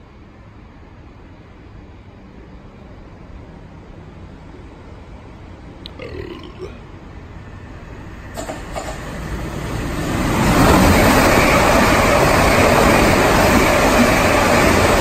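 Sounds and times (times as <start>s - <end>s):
train passing at speed: 0.0s - 5.8s, 6.9s - 15.0s.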